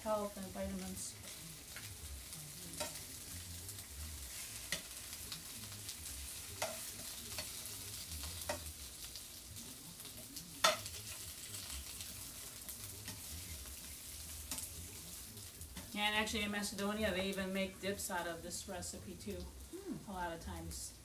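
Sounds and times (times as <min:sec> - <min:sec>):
peppers sizzling in oil: 0:00.0 - 0:21.0
metal tongs clinking on pan: 0:02.7 - 0:03.1, 0:04.4 - 0:05.1, 0:06.5 - 0:08.8, 0:10.6 - 0:12.1, 0:13.0 - 0:13.4, 0:14.4 - 0:14.8.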